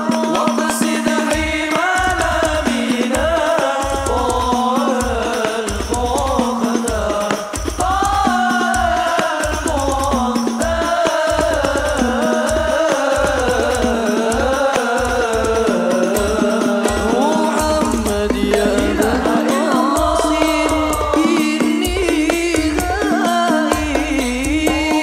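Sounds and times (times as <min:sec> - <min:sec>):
hand drums beating: 0:00.0 - 0:25.0
man singing devotional melody: 0:00.0 - 0:25.0
bass drum pulses: 0:16.2 - 0:23.0.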